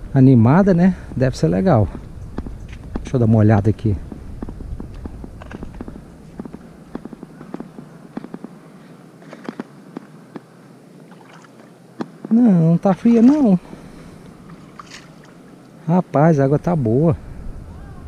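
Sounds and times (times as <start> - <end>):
footsteps on paving: 1.8 - 8.6.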